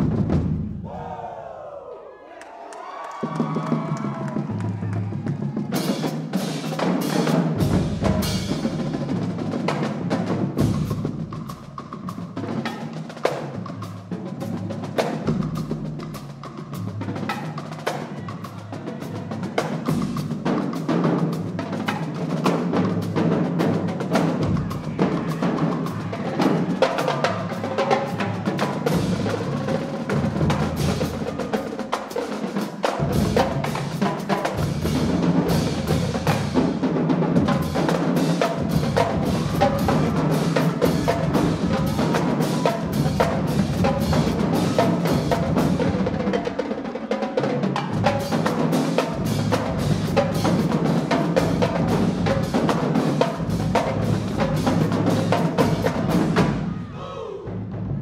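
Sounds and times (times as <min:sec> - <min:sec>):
bass drums: 0:00.0 - 0:00.9, 0:03.2 - 0:12.6, 0:33.0 - 0:46.4, 0:47.8 - 0:56.9
snare drums: 0:00.0 - 0:01.4, 0:02.8 - 0:58.0
tenor drums: 0:00.0 - 0:01.4, 0:02.9 - 0:58.0.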